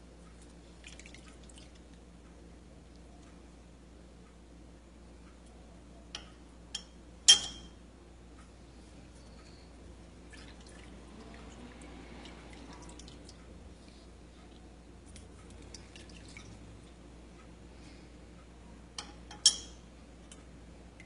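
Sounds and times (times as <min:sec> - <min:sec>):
juice dripping: 0:00.3 - 0:02.1, 0:10.2 - 0:17.0.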